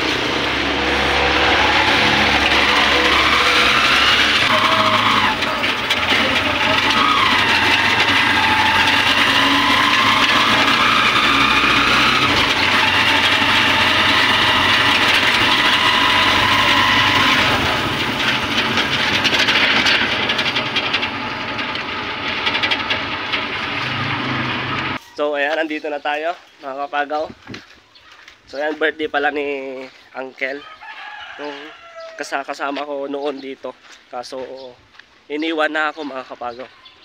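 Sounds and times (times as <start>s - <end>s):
motorcycle engine revving: 0.0s - 25.0s.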